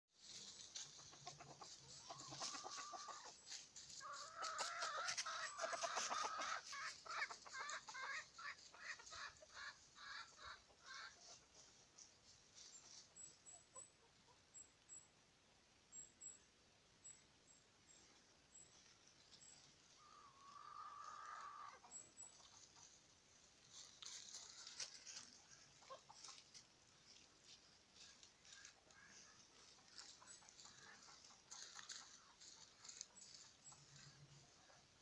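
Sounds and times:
chicken clucking: 0:00.2 - 0:14.7, 0:18.5 - 0:35.0
chicken calling: 0:00.6 - 0:11.7, 0:19.9 - 0:22.9.

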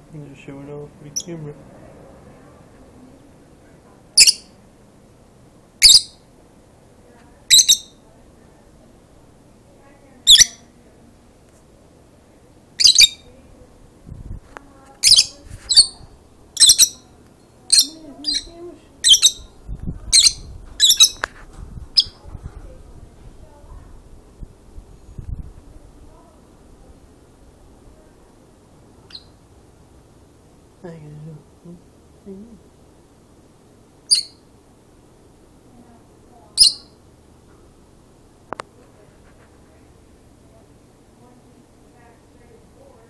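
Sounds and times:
lovebirds chirping shrilly: 0:04.2 - 0:04.6, 0:05.8 - 0:06.2, 0:07.5 - 0:08.0, 0:10.3 - 0:10.7, 0:12.8 - 0:13.3, 0:15.0 - 0:16.0, 0:16.6 - 0:17.1, 0:17.7 - 0:21.2, 0:34.1 - 0:34.4, 0:36.6 - 0:37.0.

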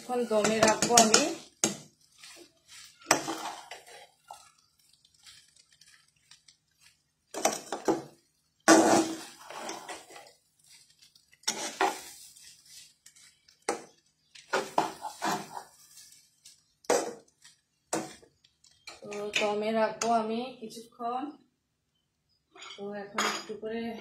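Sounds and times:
metal spatula scraping frying pan: 0:00.0 - 0:17.1.

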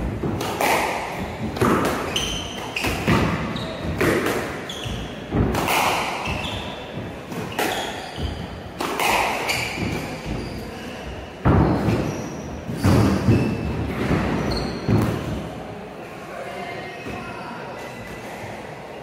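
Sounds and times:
squash ball hits: 0:00.0 - 0:10.5, 0:11.4 - 0:12.1, 0:12.7 - 0:15.4
shoes squeaking on wooden floor: 0:00.6 - 0:15.3.

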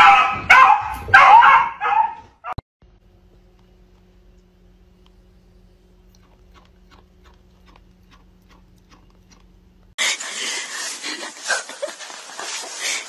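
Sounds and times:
low steady hum: 0:02.8 - 0:10.0
animal chewing clicks: 0:06.1 - 0:09.5.

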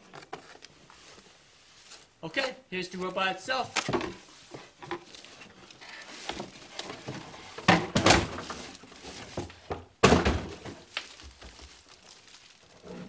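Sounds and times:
cardboard and plastic rustling: 0:03.6 - 0:13.0
dull thumps: 0:06.3 - 0:12.2.

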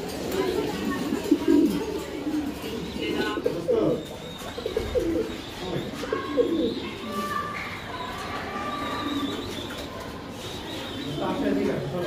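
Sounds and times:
pigeons cooing: 0:00.0 - 0:12.0
bird chirp: 0:02.7 - 0:12.0.

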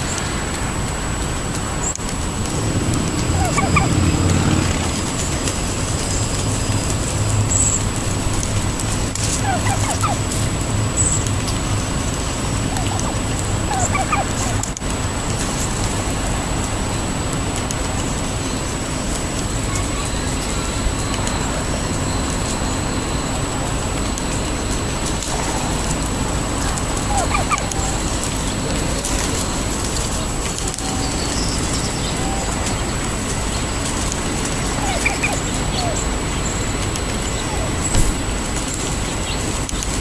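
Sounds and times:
wild turkeys calling softly: 0:03.2 - 0:04.8, 0:08.8 - 0:14.8, 0:25.0 - 0:38.0.

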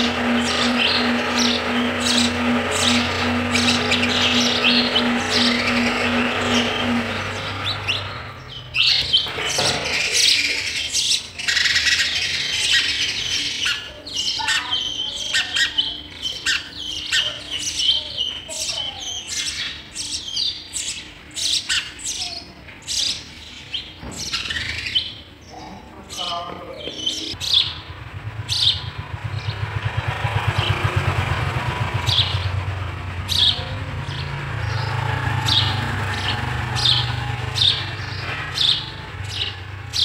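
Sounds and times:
low drone: 0:00.0 - 0:11.4
sparrow chicks chirping: 0:00.0 - 0:40.0.

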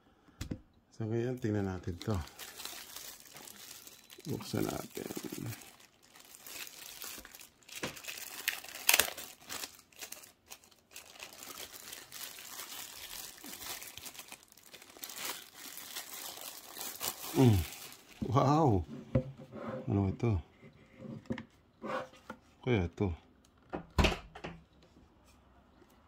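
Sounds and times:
plastic wrap crinkling: 0:01.4 - 0:18.6.

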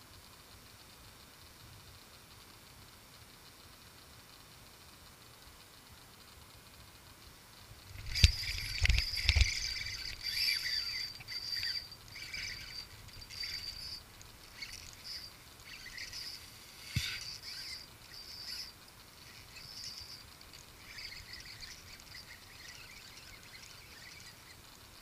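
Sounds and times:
fishing reel drag buzzing: 0:06.2 - 0:25.0.

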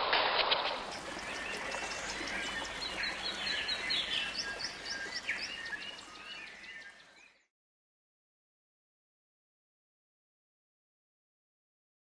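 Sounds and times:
outdoor background noise: 0:00.0 - 0:07.2
small birds chirping: 0:00.7 - 0:07.5.

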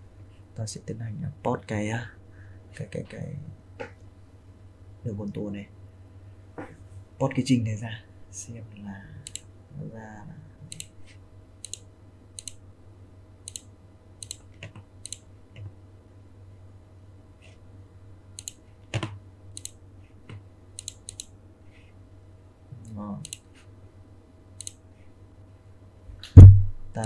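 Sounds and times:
steady low hum: 0:00.0 - 0:27.0
computer mouse clicking: 0:09.2 - 0:09.5, 0:10.7 - 0:10.9, 0:11.6 - 0:12.6, 0:13.5 - 0:15.7, 0:18.4 - 0:21.4, 0:22.8 - 0:23.5, 0:24.6 - 0:24.8.

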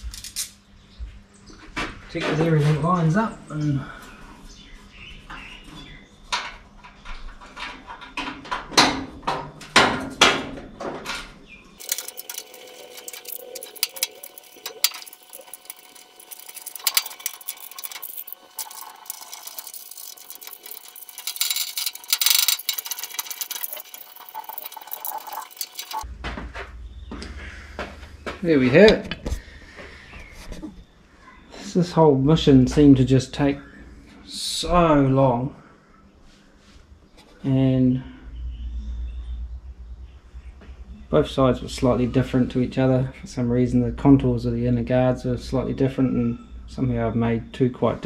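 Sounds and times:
metal covers clinking and rattling: 0:11.8 - 0:26.0.

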